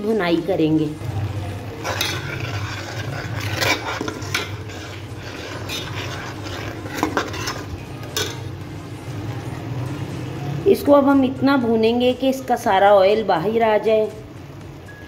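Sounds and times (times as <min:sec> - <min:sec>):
paste frying in oil: 0:01.7 - 0:08.2
ladle scraping a steel pot: 0:01.7 - 0:08.6.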